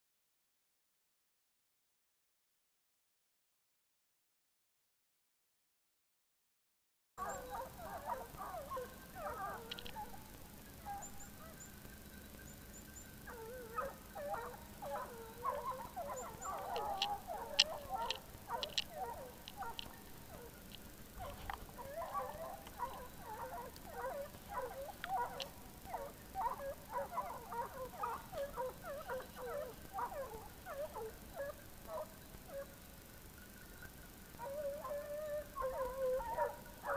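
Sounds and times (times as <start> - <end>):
hounds baying and yelping: 7.2 - 11.9, 12.9 - 32.9, 34.3 - 36.9.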